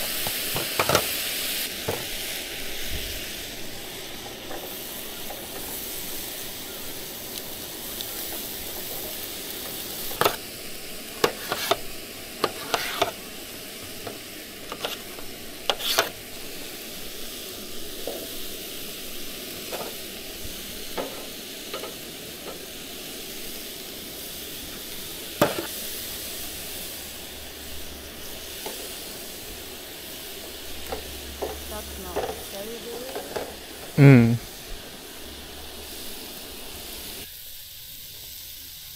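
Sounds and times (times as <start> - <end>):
meat sizzling in a hot pan: 0.0 - 38.9
utensil clinking and scraping: 8.8 - 10.4, 11.2 - 13.2, 14.0 - 16.2, 19.6 - 20.0, 21.0 - 22.6, 30.4 - 34.0.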